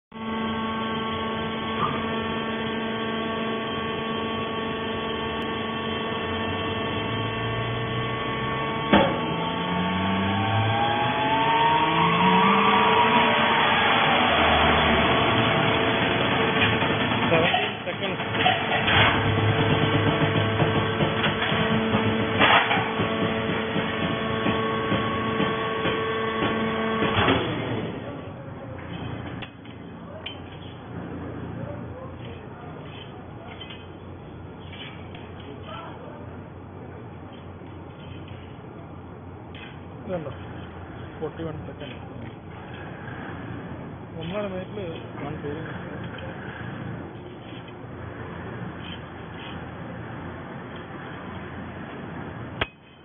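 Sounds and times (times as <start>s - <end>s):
baler motor and pump humming: 0.1s - 52.9s
low tone climbing in pitch: 3.7s - 16.3s
loud clatter: 10.4s - 28.0s
sharp bang: 12.6s - 27.8s.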